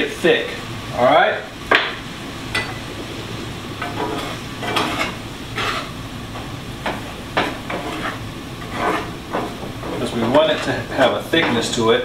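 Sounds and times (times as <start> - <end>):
steady sizzle: 0.0 - 12.0
utensil scraping frying pan: 2.5 - 12.0.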